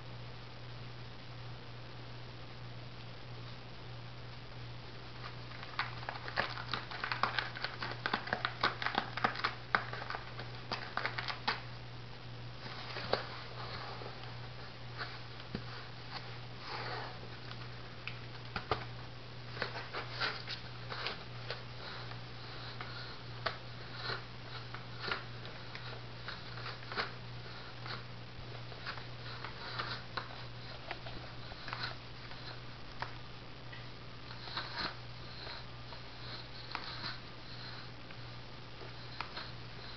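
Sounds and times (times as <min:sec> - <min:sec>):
steady low hum: 0:00.0 - 0:39.9
cat scratching cardboard: 0:05.5 - 0:11.6, 0:19.5 - 0:32.6, 0:34.3 - 0:37.9.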